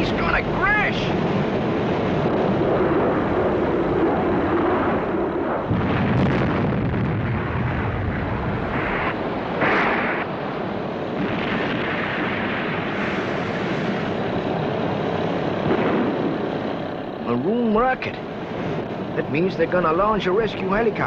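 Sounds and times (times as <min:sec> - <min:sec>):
rain: 0:00.0 - 0:04.6
aircraft engine: 0:00.0 - 0:21.0
wind: 0:00.0 - 0:21.0
heavy crash rumble: 0:05.7 - 0:10.3.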